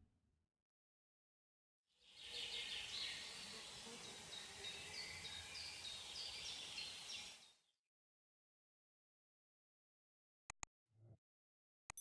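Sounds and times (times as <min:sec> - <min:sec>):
steady forest hiss: 0:02.0 - 0:07.5.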